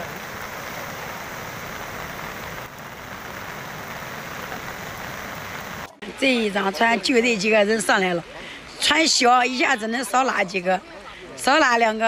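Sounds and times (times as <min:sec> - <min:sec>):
floodwater rushing: 0:00.0 - 0:05.9.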